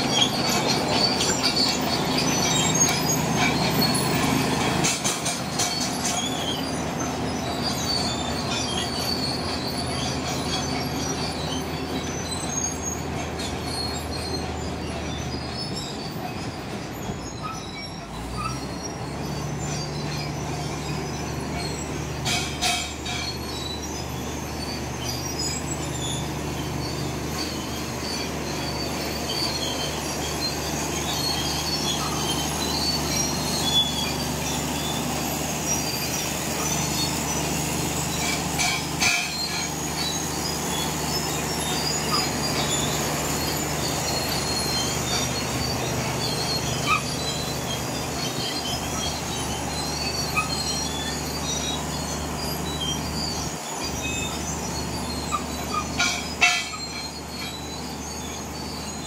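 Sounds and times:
bulldozer diesel engine running: 0.0 - 59.0
crawler tracks squealing: 0.0 - 59.0
short metallic clanks: 4.6 - 6.6, 21.5 - 23.6, 38.0 - 42.9, 55.3 - 57.7.

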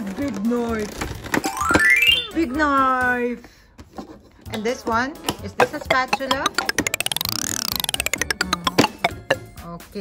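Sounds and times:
xylophone-like run: 5.6 - 9.5.

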